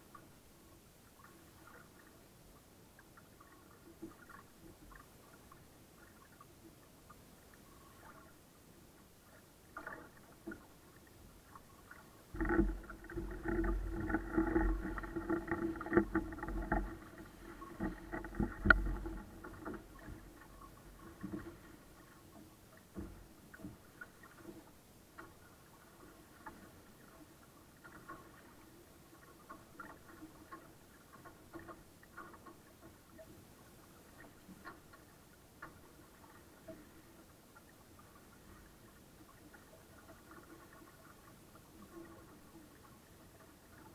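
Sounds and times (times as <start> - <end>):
boat hull knocking and splashing: 12.3 - 25.4
rumbling and knocks: 12.4 - 20.3.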